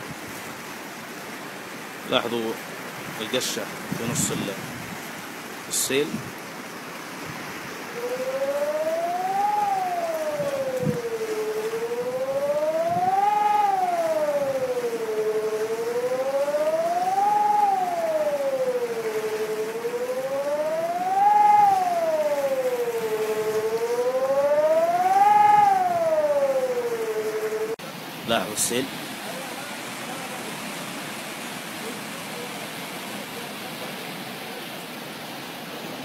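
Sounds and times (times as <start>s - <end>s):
floodwater rushing: 0.0s - 36.0s
siren wailing: 7.8s - 27.8s.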